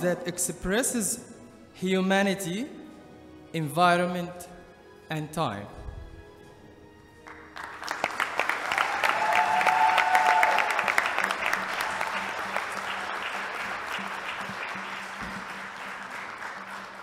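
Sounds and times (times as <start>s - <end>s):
audience applauding: 7.2s - 17.0s.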